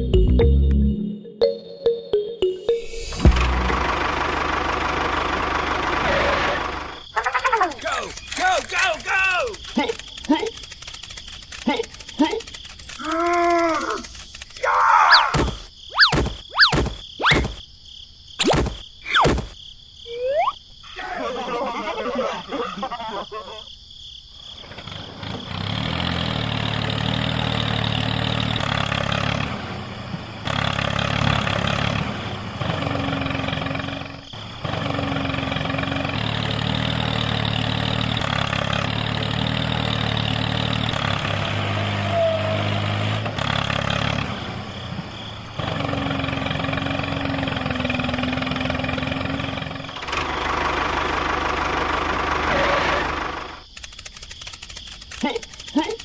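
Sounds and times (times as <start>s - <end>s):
tractor engine idling: 3.2s - 14.5s, 44.5s - 53.6s.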